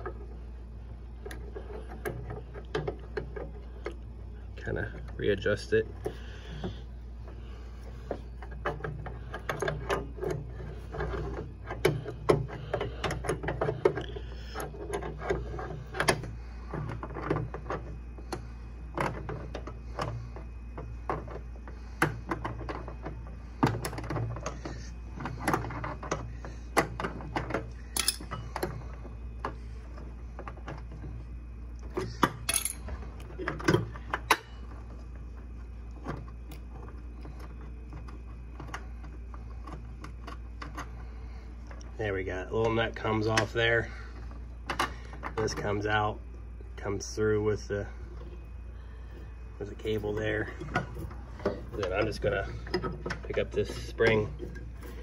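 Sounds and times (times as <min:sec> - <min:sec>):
steady low hum: 0:00.0 - 0:55.0
wrench clinking on metal nut: 0:28.0 - 0:28.4, 0:32.5 - 0:32.8.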